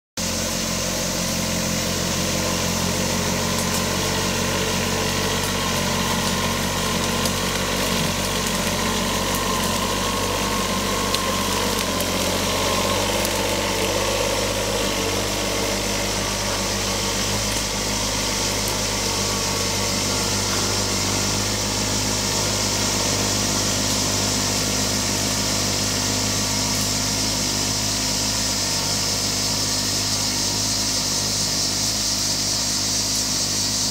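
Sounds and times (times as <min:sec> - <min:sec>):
crickets and cicadas buzzing: 0:00.2 - 0:33.9
tractor engine running: 0:00.2 - 0:33.9.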